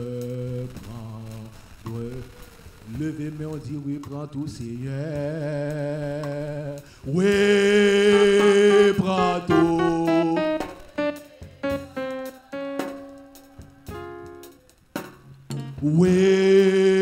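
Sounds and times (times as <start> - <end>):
man singing into a microphone: 0.0 - 11.1, 15.8 - 17.0.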